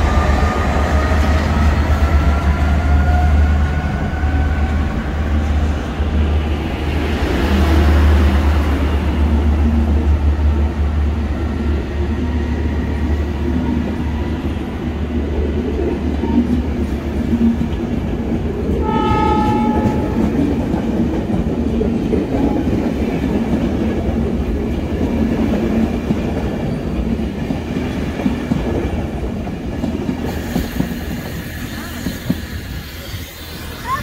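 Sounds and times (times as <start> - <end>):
train wheels rumbling and clacking: 0.0 - 34.0
train horn: 18.8 - 20.6.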